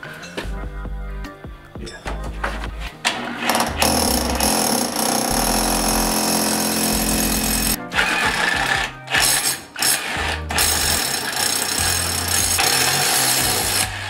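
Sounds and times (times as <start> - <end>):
electric drill boring into brick: 3.4 - 14.0.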